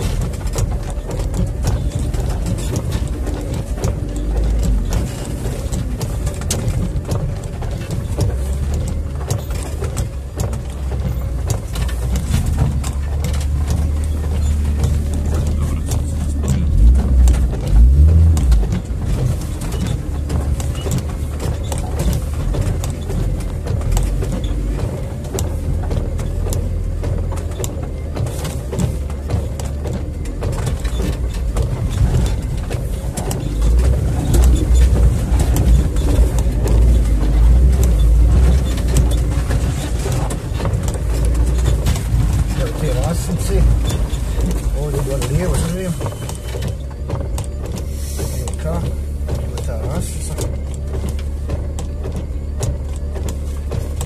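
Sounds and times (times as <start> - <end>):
car engine running slowly: 0.0 - 54.0
heavy vehicle thumps: 0.0 - 54.0.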